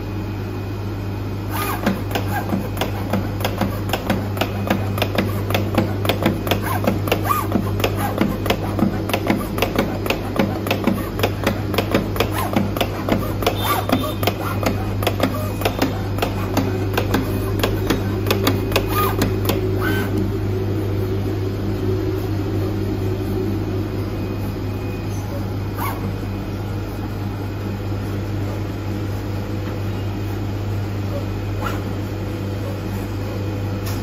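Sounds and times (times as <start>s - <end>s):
constant low hum: 0.0s - 34.0s
cutting plotter tool head clicking: 1.5s - 20.3s
drive motors whining: 1.5s - 26.9s.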